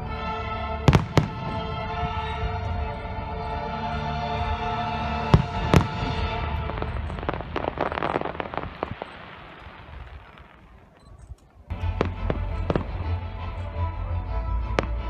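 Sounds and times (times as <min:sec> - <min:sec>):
music: 0:00.0 - 0:08.4, 0:11.7 - 0:15.0
fireworks bangs: 0:00.9 - 0:02.4, 0:05.3 - 0:13.2
fireworks crackling: 0:00.9 - 0:02.9, 0:05.2 - 0:13.7.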